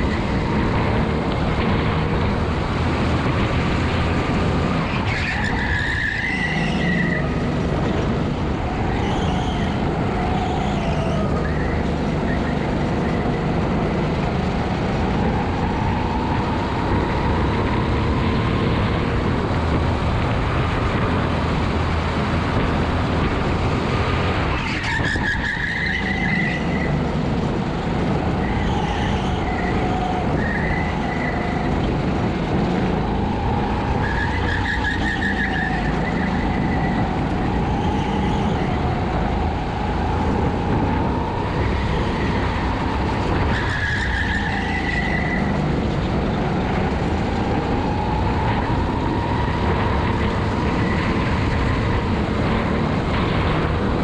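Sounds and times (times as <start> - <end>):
tyres squealing: 4.9 - 7.4
kart engine running hard: 6.4 - 24.8, 26.5 - 54.0.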